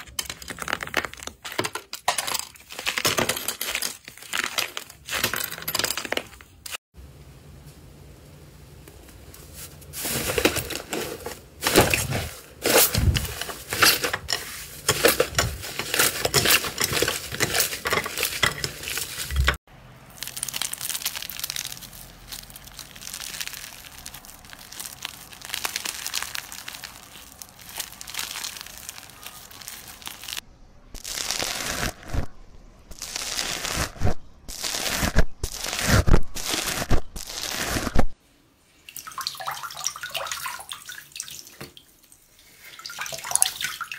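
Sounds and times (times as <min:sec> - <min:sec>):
slime crackling: 0:20.1 - 0:30.4.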